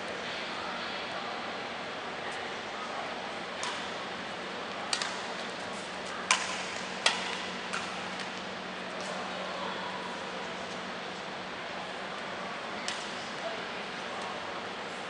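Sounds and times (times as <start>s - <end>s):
rackets striking shuttlecock: 3.6s - 3.9s, 4.9s - 5.4s, 6.2s - 8.4s, 12.8s - 13.2s.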